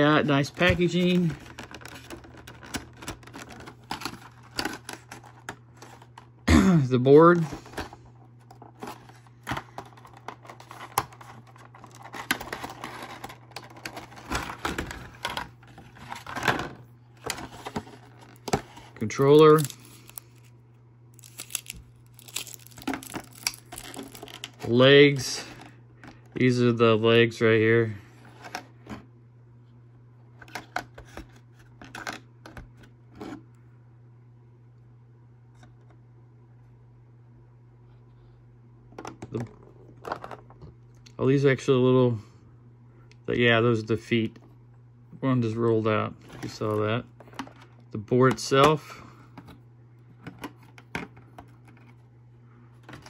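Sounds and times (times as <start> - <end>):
plastic packaging crinkling: 0.3 - 6.2, 17.2 - 20.5, 21.2 - 24.6.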